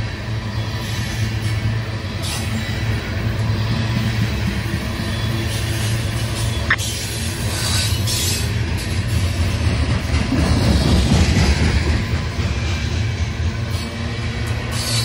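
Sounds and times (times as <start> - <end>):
train wheels rumbling on rails: 0.0 - 15.0
wheel squeal: 2.1 - 8.5, 14.7 - 15.0.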